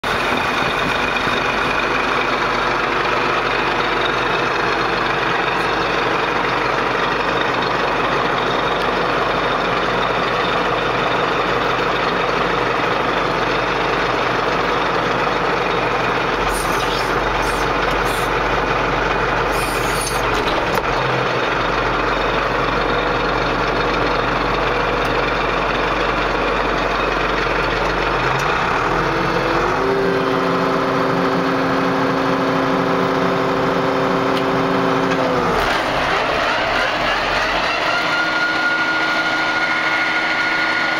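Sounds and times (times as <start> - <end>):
tractor diesel engine running: 0.0 - 40.9
high-pitched noise bursts: 16.5 - 18.3.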